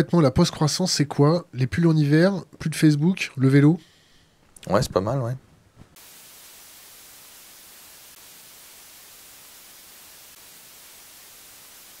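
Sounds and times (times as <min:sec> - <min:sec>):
tv static hiss: 0:04.7 - 0:12.0.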